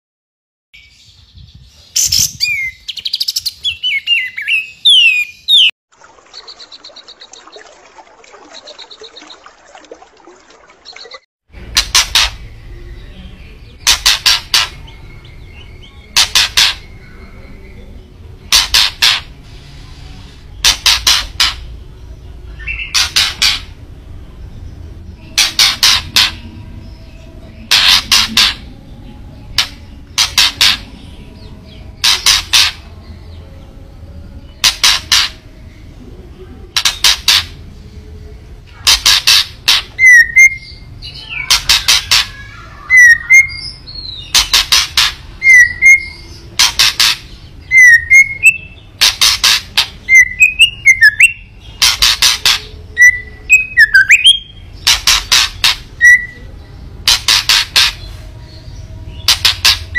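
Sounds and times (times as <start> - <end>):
bird harsh rattling calls: 13.8 - 14.8, 16.2 - 17.0, 18.5 - 19.3, 20.6 - 21.7, 22.7 - 23.8, 25.4 - 26.4, 27.7 - 28.7, 29.5 - 30.9, 32.0 - 32.9, 38.8 - 56.3, 57.0 - 58.1, 59.2 - 59.9.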